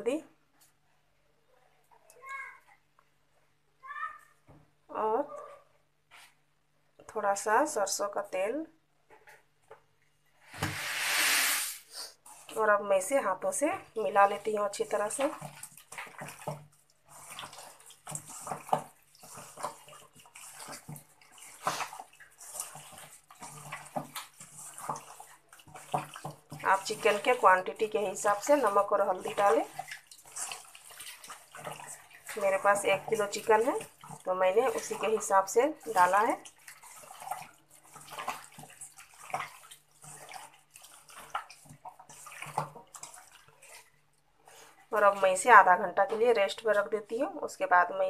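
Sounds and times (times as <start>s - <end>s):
hand squelching raw meat in marinade: 14.0s - 45.6s.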